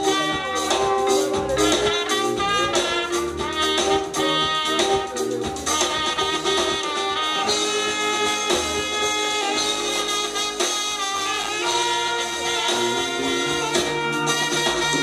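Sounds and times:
bass guitar: 0:00.0 - 0:15.0
drum kit: 0:00.0 - 0:15.0
electric guitars: 0:00.0 - 0:15.0
saxophone and trumpet: 0:00.0 - 0:15.0.

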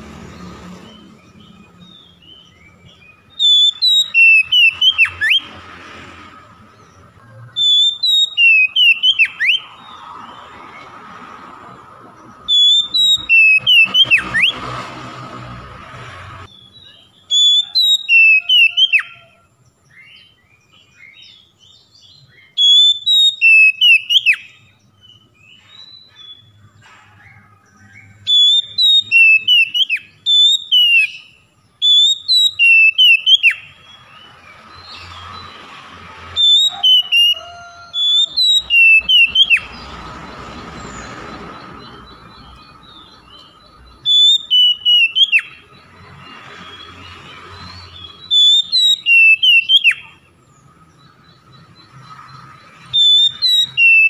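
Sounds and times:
bird singing whistled phrases: 0:01.5 - 0:05.5, 0:07.6 - 0:09.9, 0:12.5 - 0:14.6, 0:16.5 - 0:19.3, 0:21.0 - 0:25.2, 0:28.2 - 0:34.3, 0:36.4 - 0:39.8, 0:41.9 - 0:45.7, 0:47.9 - 0:50.2, 0:52.8 - 0:54.0.

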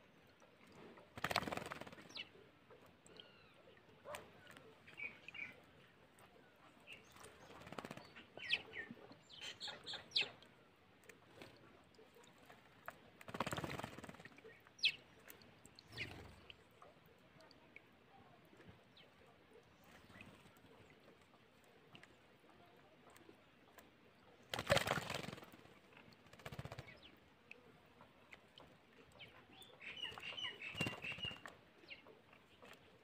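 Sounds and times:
bird wings flapping and splashing: 0:01.1 - 0:02.3, 0:07.0 - 0:08.8, 0:12.4 - 0:15.4, 0:24.4 - 0:27.1, 0:29.8 - 0:31.6.

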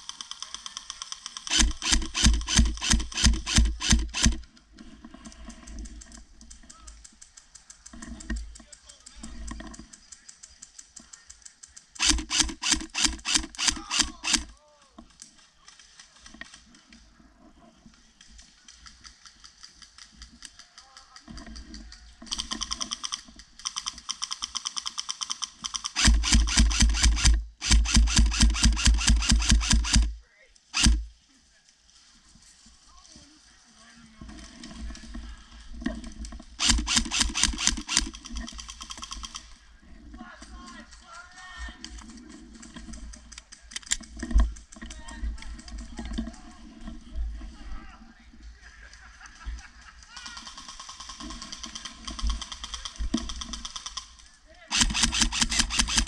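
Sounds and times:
airsoft rifle full-auto burst: 0:00.0 - 0:04.4, 0:12.0 - 0:14.5, 0:22.3 - 0:31.1, 0:36.6 - 0:39.4, 0:54.7 - 0:56.0.

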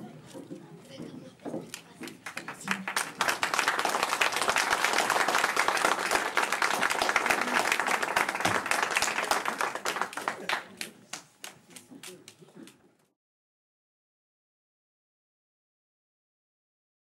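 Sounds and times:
audience applauding: 0:02.2 - 0:12.4.

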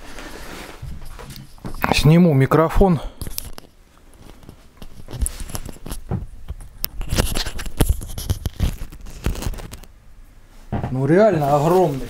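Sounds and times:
microphone rustling against clothing: 0:00.0 - 0:02.2, 0:03.0 - 0:09.9.

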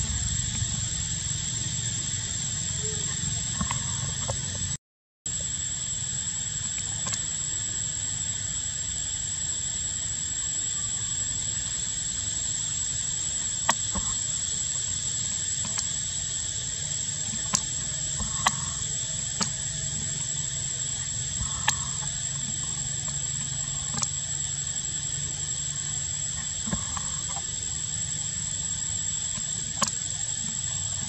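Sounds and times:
low hum: 0:00.0 - 0:04.8
steady high-pitched whine: 0:00.0 - 0:31.0.

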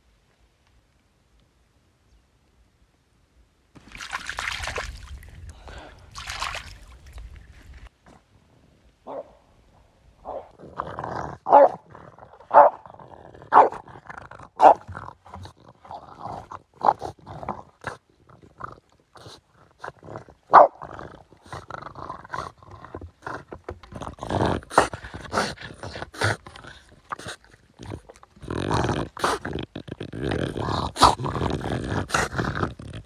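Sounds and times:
dog growling: 0:10.3 - 0:33.0.

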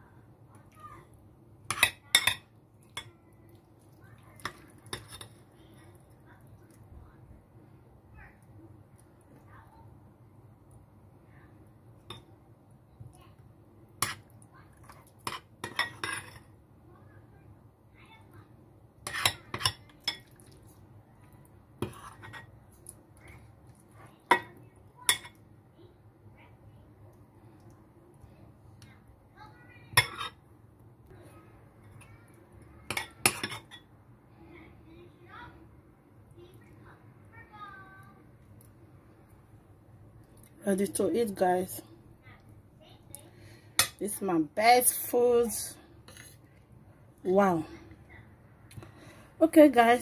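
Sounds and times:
spoon clinking on a bowl: 0:01.7 - 0:03.1
spoon scraping a bowl: 0:15.2 - 0:16.5, 0:19.0 - 0:20.2, 0:21.8 - 0:22.6, 0:30.0 - 0:30.4, 0:32.9 - 0:33.8, 0:46.0 - 0:46.4.

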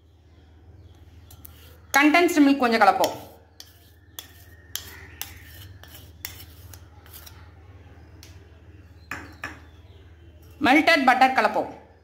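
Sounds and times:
plastic spoon clicking and scraping: 0:01.2 - 0:01.8, 0:03.0 - 0:07.5.

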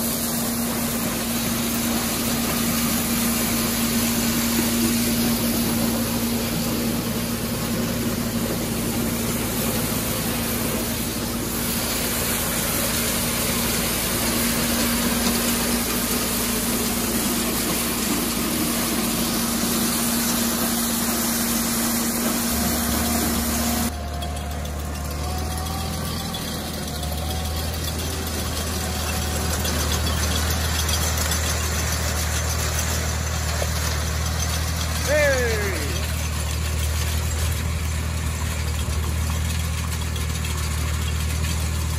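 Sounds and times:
deeper tractor engine: 0:00.0 - 0:41.9
tractor engine under load: 0:00.0 - 0:41.9.

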